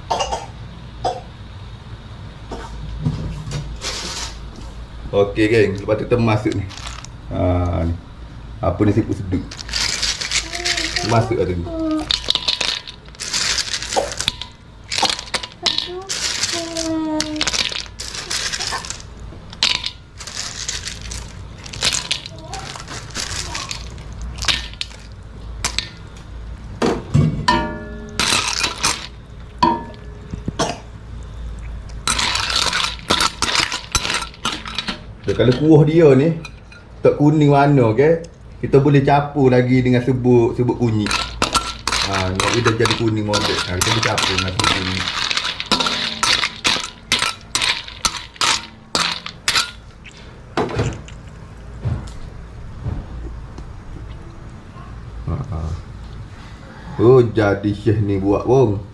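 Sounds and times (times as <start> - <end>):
shells clinking against wok: 41.0 - 49.8
spatula scraping wok: 41.0 - 49.8.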